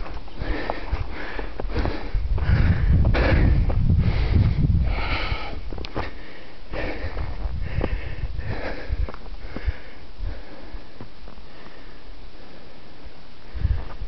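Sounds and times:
person breathing hard: 0.0 - 14.0
low rumble: 1.0 - 5.9.

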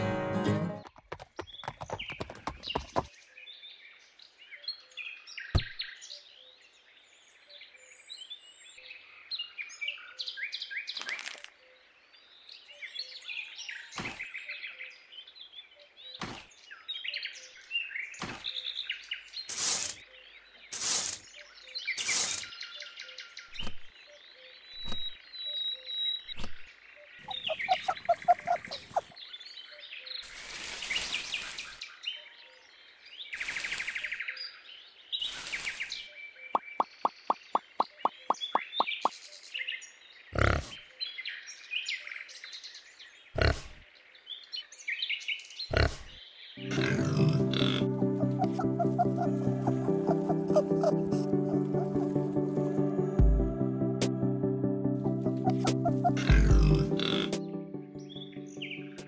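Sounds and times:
small birds chirping: 0.8 - 4.4, 10.8 - 46.6, 48.0 - 52.3, 55.2 - 57.0.

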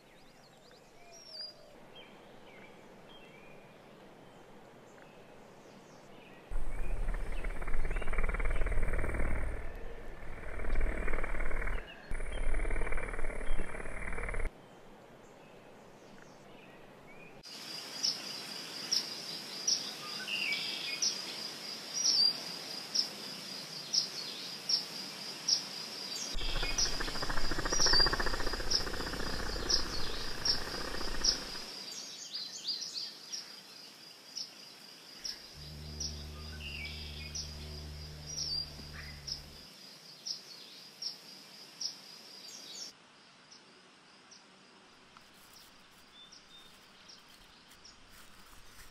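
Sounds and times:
insects trilling: 6.5 - 14.5, 26.2 - 32.0, 34.8 - 40.2
low steady hum: 6.5 - 15.0, 35.6 - 39.6.

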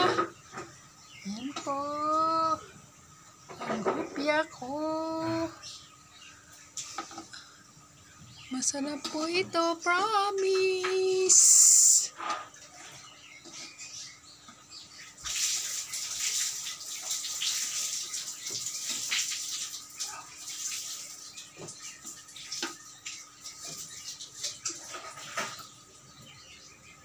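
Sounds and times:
pastries sizzling in a pan: 14.9 - 25.7.

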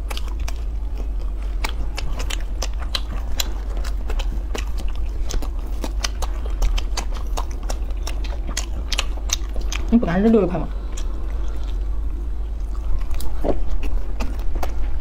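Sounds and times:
chewing pizza: 0.0 - 15.0
low hum: 0.0 - 15.0.

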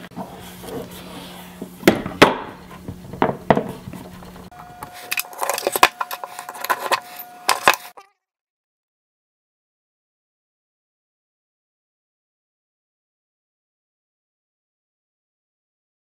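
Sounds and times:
screwdriver clicking on metal case: 5.0 - 7.9.

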